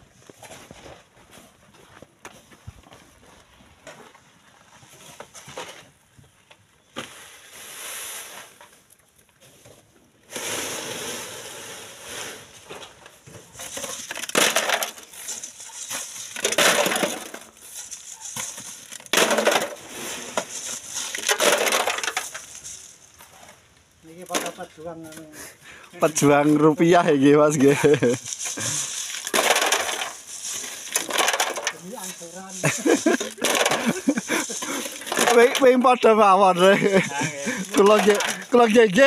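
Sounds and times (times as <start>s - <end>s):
gravel pouring: 7.0s - 9.0s, 10.2s - 25.4s, 26.0s - 39.0s
shovel scraping sand and gravel: 7.0s - 25.4s, 26.0s - 39.0s.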